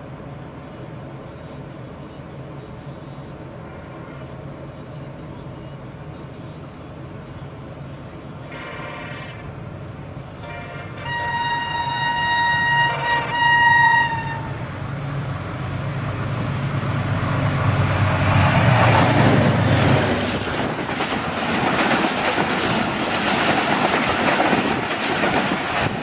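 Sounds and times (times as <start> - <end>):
train horn blasts: 8.4 - 9.6, 10.4 - 14.7.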